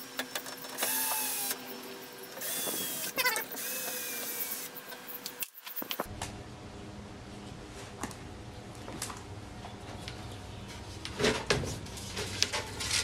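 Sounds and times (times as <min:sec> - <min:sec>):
cordless drill whining: 0:00.8 - 0:01.6, 0:02.4 - 0:04.7.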